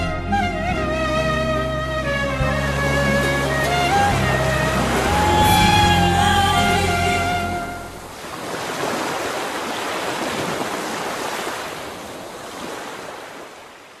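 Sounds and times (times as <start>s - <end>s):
song music: 0.0s - 8.1s
ocean surf washing on sand: 2.7s - 14.0s.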